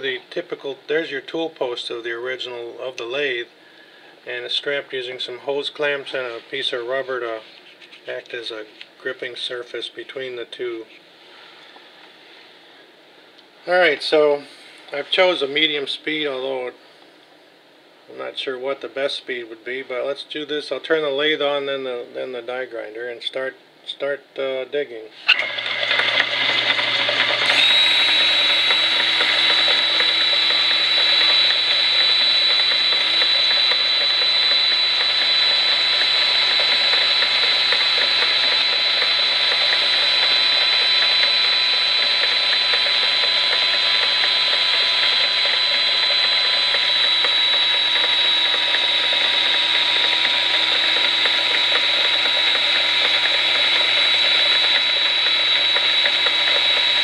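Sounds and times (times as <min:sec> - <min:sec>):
rotary tool high whine: 0:25.2 - 0:57.0
metal lathe running: 0:25.3 - 0:57.0.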